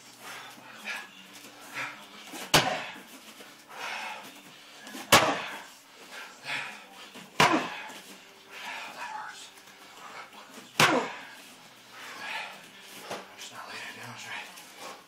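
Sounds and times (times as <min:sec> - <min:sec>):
kicks smacking a kick shield: 0:02.4 - 0:03.0, 0:05.1 - 0:05.6, 0:07.4 - 0:07.9, 0:10.8 - 0:11.2.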